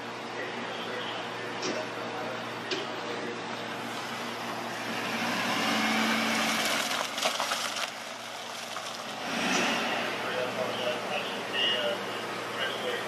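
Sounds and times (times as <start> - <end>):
vehicle driving by: 3.8 - 13.0.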